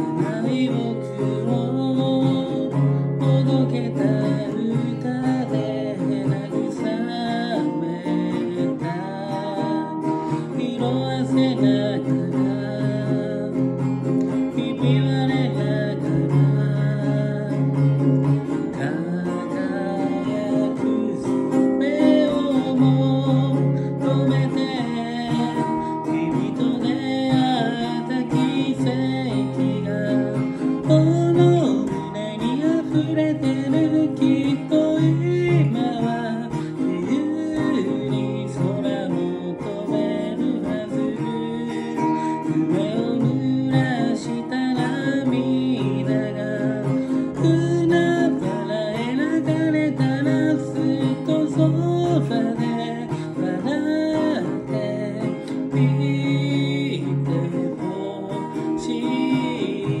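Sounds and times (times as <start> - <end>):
acoustic guitar strumming: 0.0 - 60.0
person singing: 0.0 - 60.0.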